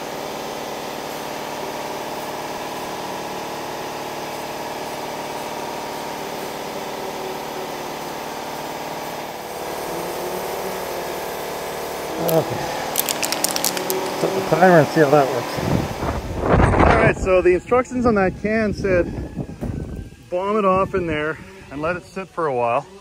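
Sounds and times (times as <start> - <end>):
machine motor humming with hiss: 0.0 - 16.3.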